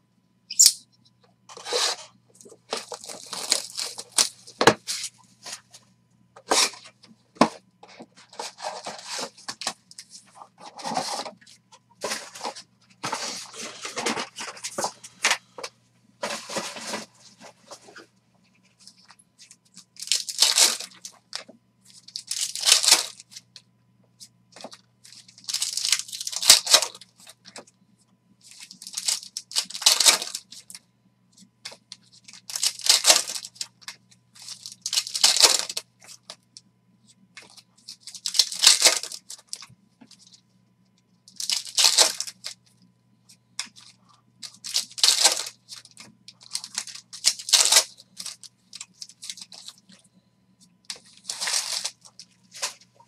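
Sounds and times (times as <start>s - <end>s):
wrappers crinkling: 1.6s - 5.6s, 18.8s - 23.5s, 24.6s - 27.6s, 28.5s - 30.8s, 31.7s - 36.4s, 37.4s - 40.4s, 41.3s - 42.6s, 43.6s - 50.0s, 50.9s - 53.0s
foil packs tearing: 2.7s - 5.0s, 20.0s - 21.2s, 22.1s - 23.2s, 25.4s - 27.0s, 28.5s - 30.7s, 32.3s - 33.6s, 34.4s - 35.8s, 38.0s - 39.6s, 41.4s - 42.6s, 44.4s - 49.8s, 51.0s - 52.8s.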